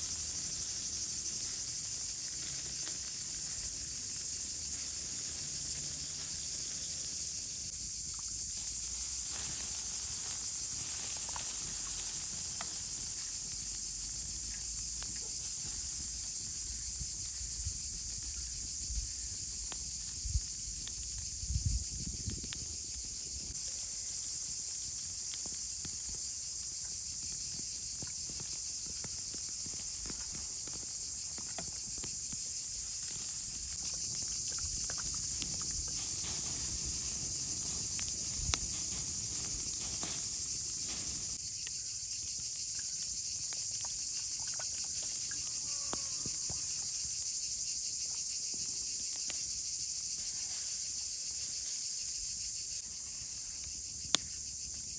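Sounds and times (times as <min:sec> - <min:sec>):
wood fire popping: 0:00.0 - 0:41.7
insects chorus: 0:00.0 - 0:54.9.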